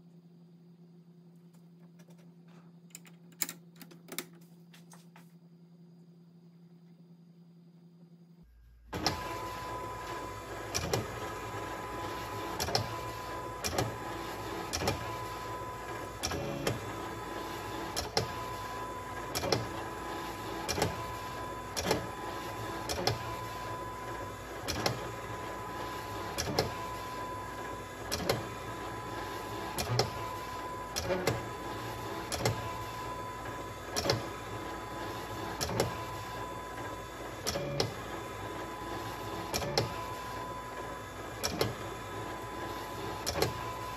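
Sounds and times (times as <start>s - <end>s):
cutting machine motors whining: 8.9s - 43.9s.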